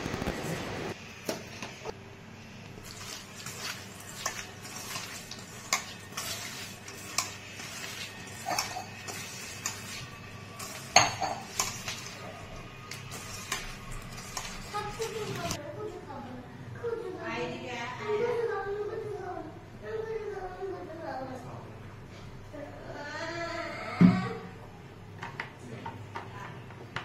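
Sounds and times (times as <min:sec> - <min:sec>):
metal bowl clinking: 0:02.9 - 0:15.5.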